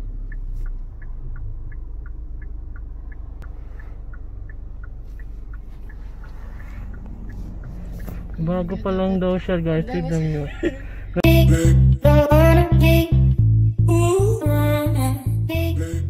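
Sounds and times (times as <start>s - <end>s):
turn signal clicking: 0.0s - 11.4s
engine hum and road noise: 0.0s - 16.0s.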